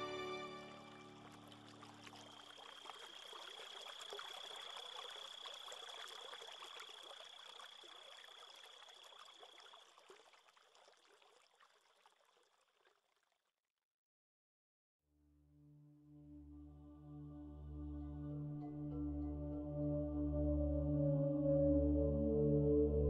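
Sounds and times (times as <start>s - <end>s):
babbling water trickling: 0.7s - 13.1s.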